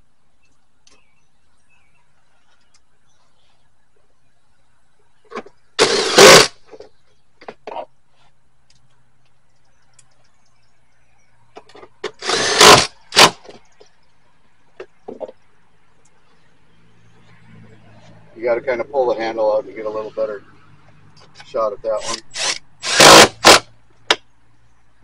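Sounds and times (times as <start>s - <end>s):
cordless power driver running: 5.8s - 6.6s, 12.1s - 13.3s, 22.0s - 23.6s.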